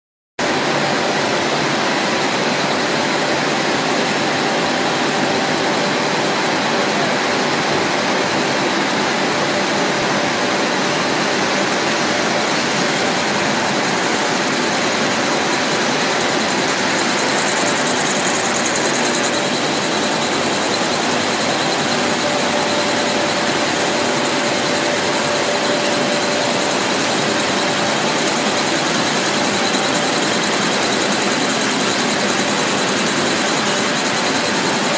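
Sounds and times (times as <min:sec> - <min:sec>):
factory machinery running: 0:00.4 - 0:34.9
faint high machine whine: 0:00.4 - 0:34.9.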